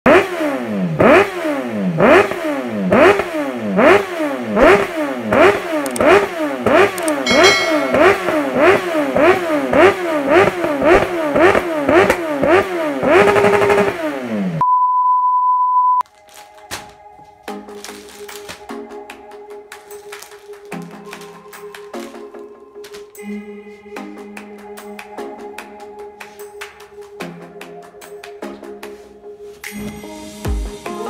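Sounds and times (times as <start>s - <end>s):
motorcycle engine revving: 0.1s - 14.6s
steady high beep: 7.3s - 8.6s.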